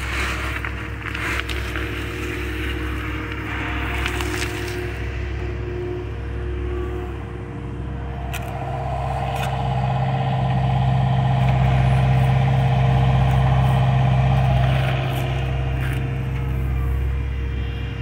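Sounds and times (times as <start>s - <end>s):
excavator diesel engine running: 8.2s - 18.0s.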